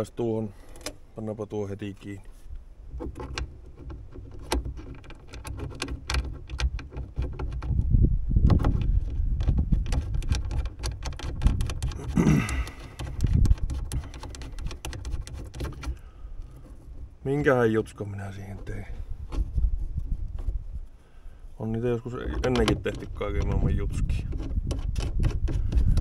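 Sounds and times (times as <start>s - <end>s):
metal latch clicks and rattles: 2.9s - 7.8s, 8.4s - 16.0s, 22.1s - 26.0s.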